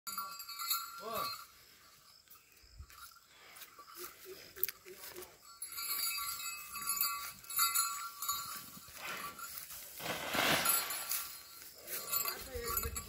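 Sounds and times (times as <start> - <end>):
scraping of soil and straw: 8.9 - 12.0.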